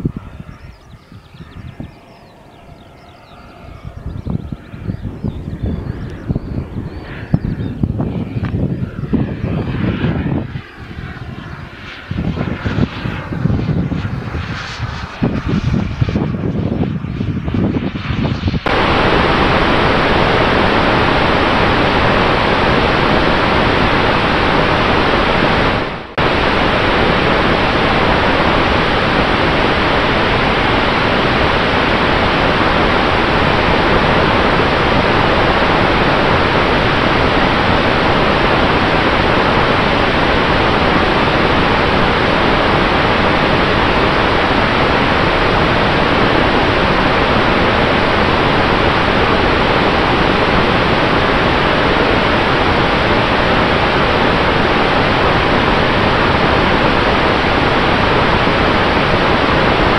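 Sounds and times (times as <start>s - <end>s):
rush of airflow: 0.0s - 59.9s
small aircraft engine passing: 0.0s - 59.9s
faint steady hum: 18.6s - 59.9s.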